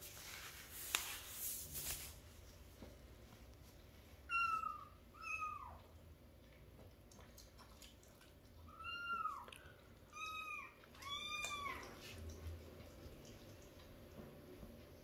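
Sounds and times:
cat meowing: 10.1 - 12.0.

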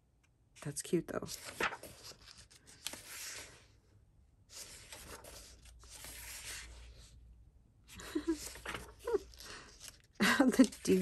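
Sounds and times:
paper pages rustling: 1.2 - 3.8, 4.5 - 7.1, 7.9 - 11.0.

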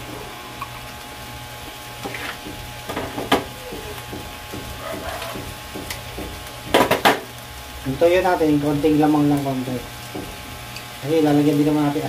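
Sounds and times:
steady low hum: 0.0 - 11.2
kitchen items clicking on stovetop: 2.0 - 7.3.

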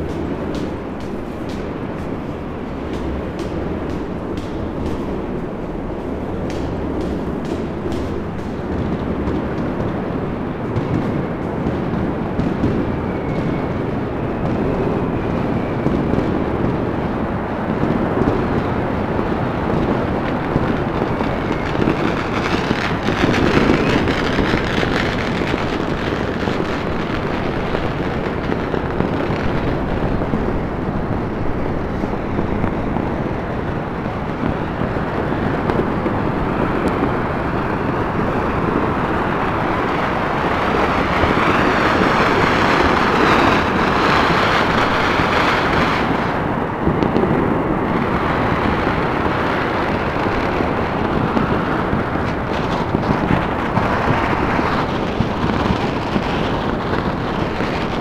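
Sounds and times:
fireworks and firecrackers crackling: 0.0 - 58.0.

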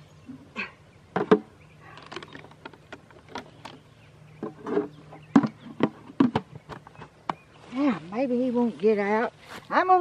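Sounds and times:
handling taps clicks and rustles: 1.1 - 7.5.

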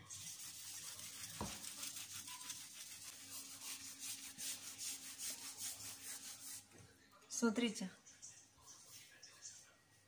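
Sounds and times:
paper napkin swishing on tiles: 0.0 - 6.7.

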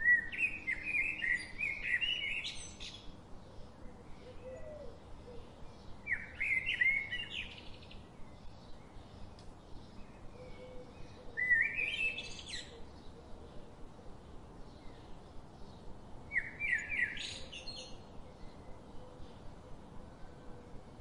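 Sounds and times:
bird whistling song: 0.0 - 3.0, 6.0 - 7.8, 11.4 - 12.8, 16.3 - 18.0
low background hiss: 0.0 - 21.0.

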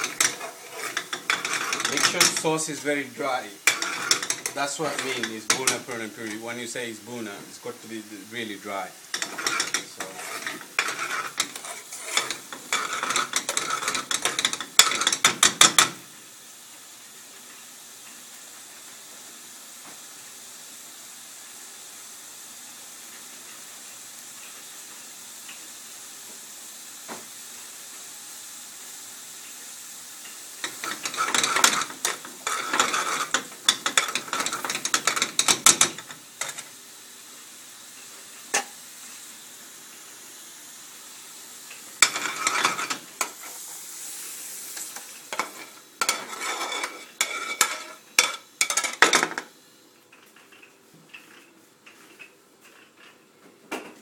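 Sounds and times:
metal ladle scraping frying pan: 0.0 - 6.4, 9.1 - 15.9, 30.6 - 36.7, 42.0 - 43.5, 44.8 - 49.4
steady hiss: 0.0 - 54.0.

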